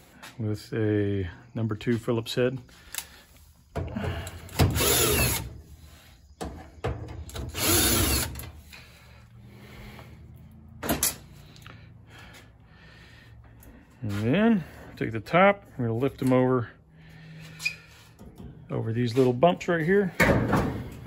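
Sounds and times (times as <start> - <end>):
cordless drill whirring: 4.5 - 6.0, 7.3 - 8.7.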